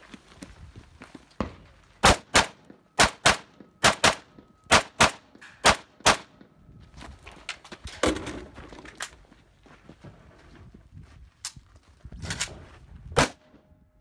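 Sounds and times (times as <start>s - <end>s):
rifle shots: 2.0s - 6.3s, 13.2s - 13.5s.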